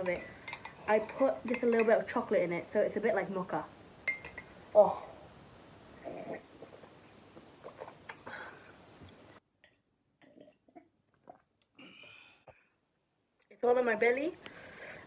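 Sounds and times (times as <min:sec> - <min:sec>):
faint background hiss: 0:00.0 - 0:15.0
mouth or handling noises: 0:06.0 - 0:08.3.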